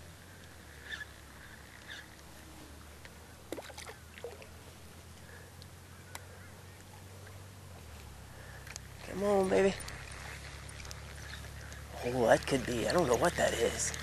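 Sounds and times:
low steady hum: 0.0s - 14.0s
short bird calls: 0.3s - 2.2s
small water splashes: 3.4s - 4.7s.

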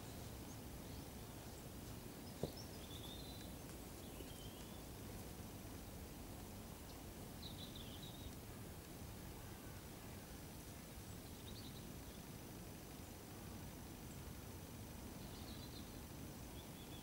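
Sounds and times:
faint bird chirps: 0.0s - 4.9s, 6.9s - 8.4s, 9.4s - 12.4s, 15.1s - 17.0s.

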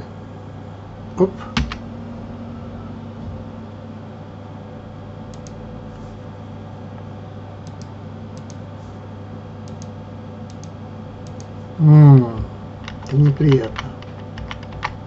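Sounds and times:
low electrical hum: 0.0s - 15.0s
computer keyboard keys clicking: 9.6s - 9.9s, 10.5s - 11.5s, 12.2s - 15.0s.

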